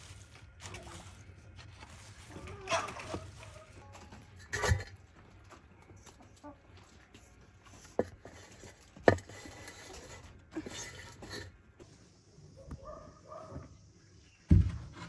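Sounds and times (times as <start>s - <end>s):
scraping rustles in ash: 0.0s - 5.0s, 7.6s - 11.9s.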